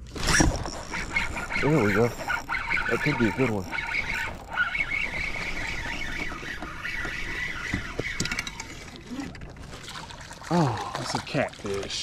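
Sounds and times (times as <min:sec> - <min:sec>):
fishing reel whining: 0:00.1 - 0:09.5.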